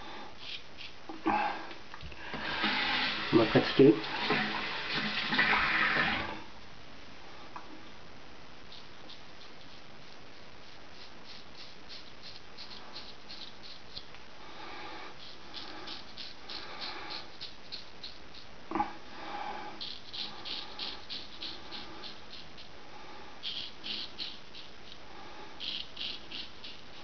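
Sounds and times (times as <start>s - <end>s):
razor scraping stubble: 10.6s - 14.2s, 15.1s - 18.5s, 19.8s - 22.7s, 23.4s - 25.0s, 25.6s - 27.0s.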